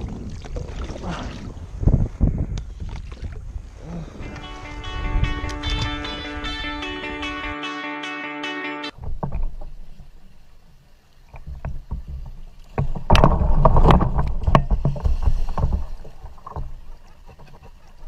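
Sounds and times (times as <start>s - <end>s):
water splashing around kayak: 0.0s - 4.8s, 9.0s - 18.0s
paddle knocking on plastic hull: 11.3s - 16.8s.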